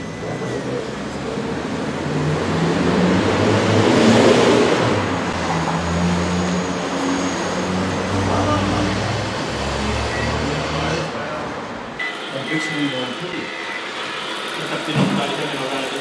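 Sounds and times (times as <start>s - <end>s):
hydraulic pump whirring: 12.0s - 16.0s.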